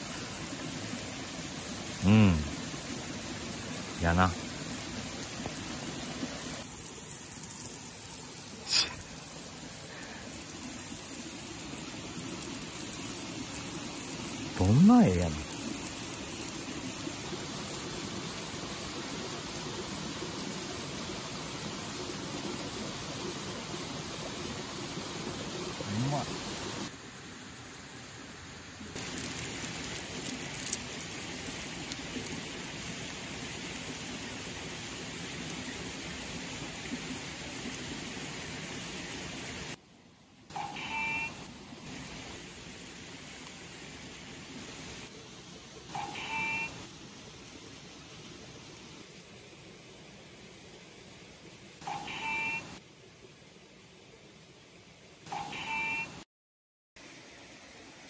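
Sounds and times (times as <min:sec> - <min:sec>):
mountain stream rushing: 0:00.0 - 0:39.8
light clicks and crackles: 0:29.0 - 0:32.4.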